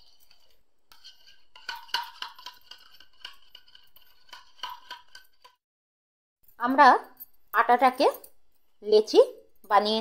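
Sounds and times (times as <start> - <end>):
utensil clinking and scraping bowl: 0.0 - 5.6.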